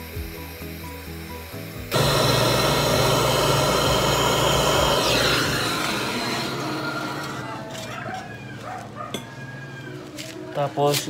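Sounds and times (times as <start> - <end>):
gas torch flame roaring: 0.0 - 7.8.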